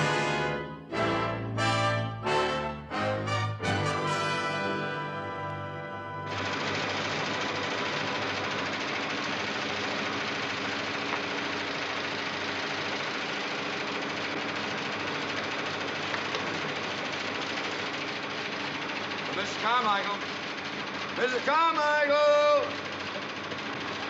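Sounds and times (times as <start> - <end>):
computer whirring and clattering: 6.3 - 12.4.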